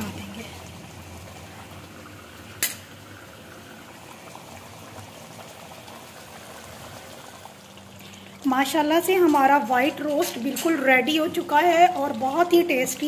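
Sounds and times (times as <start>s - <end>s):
sauce bubbling: 0.0s - 13.0s.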